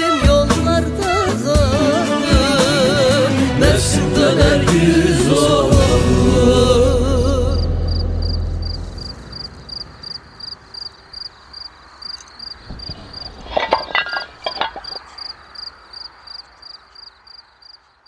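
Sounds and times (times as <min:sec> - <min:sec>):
cricket chirping: 0:07.6 - 0:18.0
horseshoes clinking together: 0:13.4 - 0:15.2.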